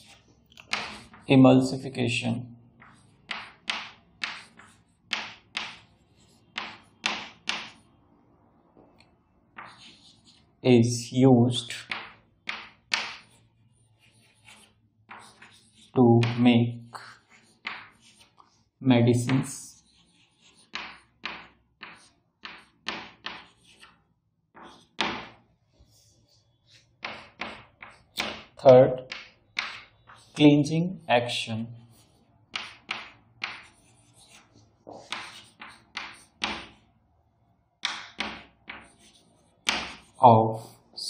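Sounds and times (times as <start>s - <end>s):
chalk tapping on chalkboard: 0.0s - 1.3s, 2.8s - 7.8s, 9.5s - 10.4s, 11.6s - 18.5s, 19.1s - 25.4s, 26.7s - 30.4s, 31.9s - 36.8s, 37.8s - 40.8s.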